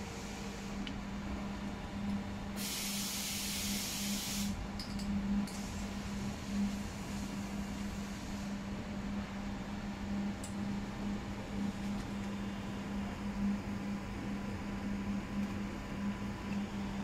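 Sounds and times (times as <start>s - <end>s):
low room hum: 4.6s - 17.0s.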